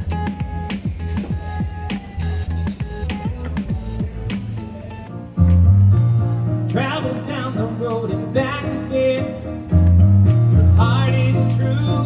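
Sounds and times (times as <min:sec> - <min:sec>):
bass line: 0:00.0 - 0:12.0
instrumental backing: 0:00.0 - 0:12.0
man singing into a microphone: 0:06.6 - 0:09.9, 0:10.6 - 0:12.0.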